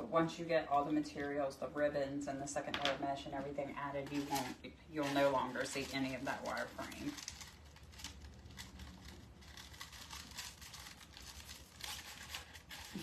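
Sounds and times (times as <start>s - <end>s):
mesh rustling and crinkling: 3.4s - 13.0s.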